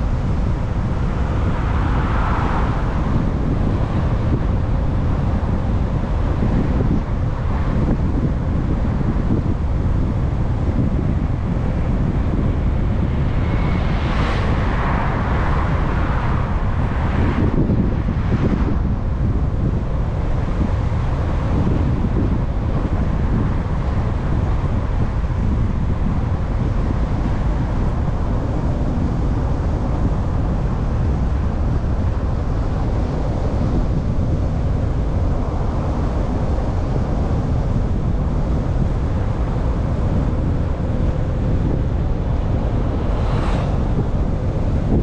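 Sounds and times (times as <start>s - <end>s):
wind and road rumble: 0.0s - 45.0s
cars swishing past: 1.2s - 4.0s, 42.4s - 45.0s.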